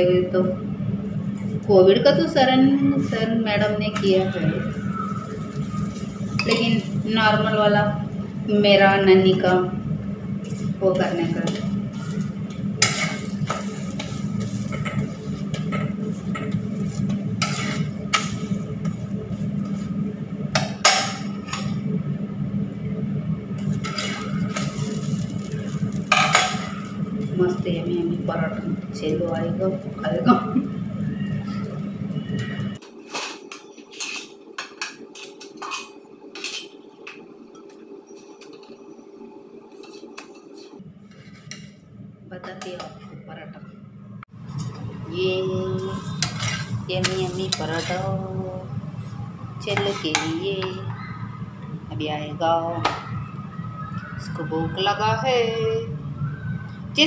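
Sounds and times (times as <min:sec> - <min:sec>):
steady low hum: 0:00.0 - 0:57.0
dishes and utensils clinking: 0:33.0 - 0:36.8.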